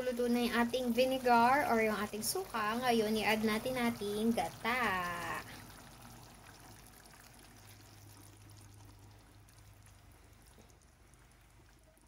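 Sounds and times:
liquid pouring into a pan: 3.6s - 12.0s.

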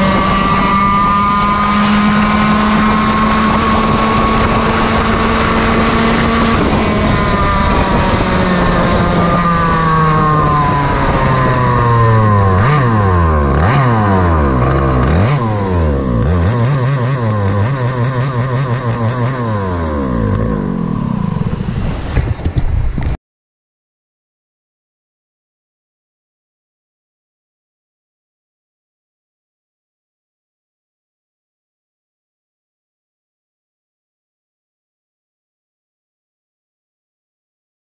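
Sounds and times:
kart engine revving: 0.0s - 22.5s.

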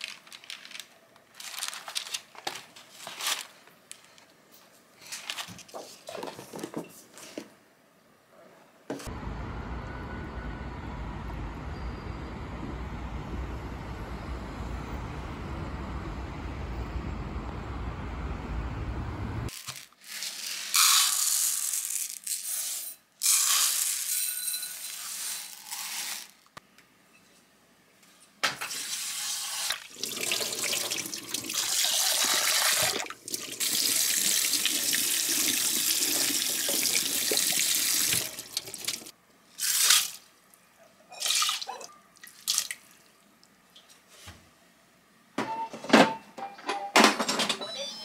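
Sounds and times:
tap water running into bowl: 29.9s - 39.1s.

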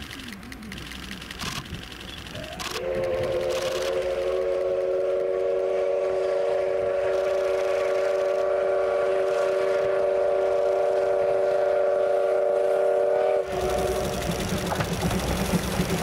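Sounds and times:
train whistle chord: 2.8s - 14.2s
low engine rumble: 13.4s - 16.0s.

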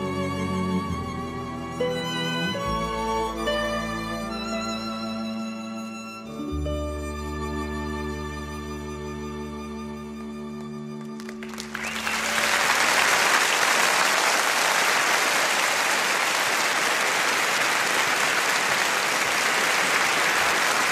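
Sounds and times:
audience applause: 11.2s - 20.9s.

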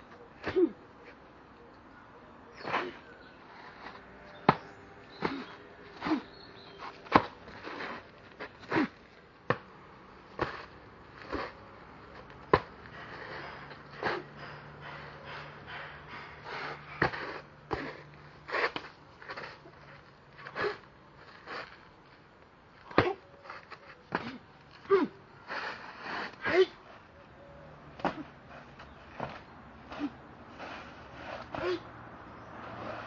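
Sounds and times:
short forceful breaths: 10.3s - 19.7s, 22.8s - 33.0s.

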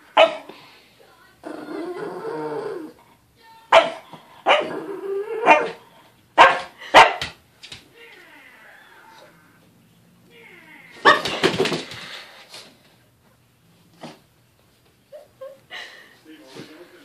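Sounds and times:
dog barking: 0.2s - 0.5s, 3.7s - 4.8s, 5.4s - 5.8s, 6.4s - 7.4s, 11.0s - 11.4s
dog growling: 1.4s - 3.1s, 4.5s - 6.1s.

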